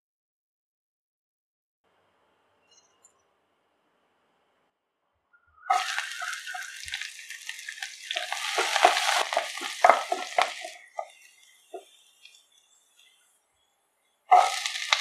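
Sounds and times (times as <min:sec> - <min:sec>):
spatula stirring: 0:05.7 - 0:13.2, 0:14.3 - 0:15.0
garlic sizzling in hot oil: 0:05.7 - 0:13.4, 0:14.3 - 0:15.0.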